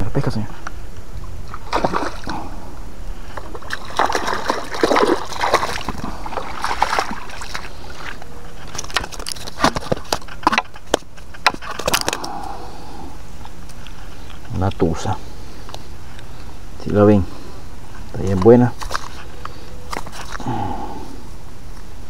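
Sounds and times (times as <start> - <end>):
fish splashing in shallow water: 1.4 - 12.6
fish flapping on wet mud: 1.5 - 2.4, 3.4 - 12.2.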